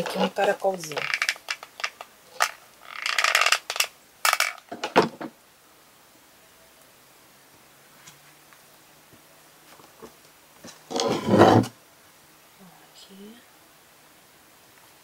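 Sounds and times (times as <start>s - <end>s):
rustling scrape: 10.0s - 11.8s.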